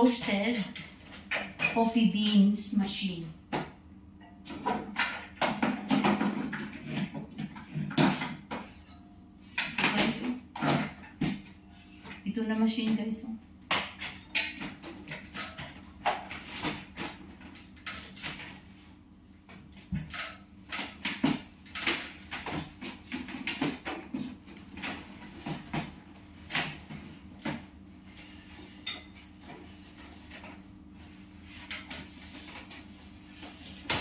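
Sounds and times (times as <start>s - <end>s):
kitchen items knocking and clattering: 0.0s - 2.5s, 3.4s - 30.7s.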